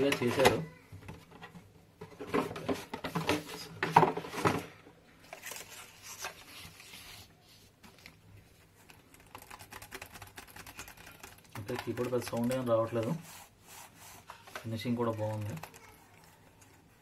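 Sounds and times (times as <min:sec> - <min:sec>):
knocks and rustling on table: 0:00.2 - 0:04.8.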